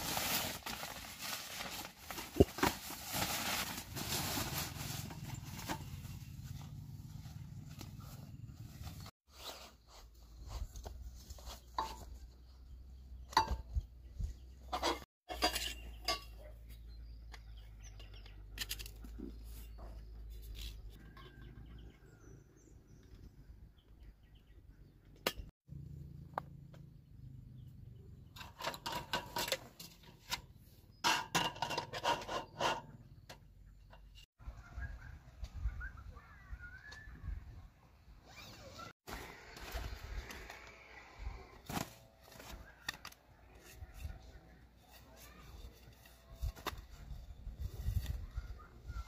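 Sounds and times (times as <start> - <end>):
metal camp furniture clinking: 0.0 - 6.7, 11.7 - 12.2, 13.3 - 13.9, 14.6 - 16.8, 28.4 - 34.2.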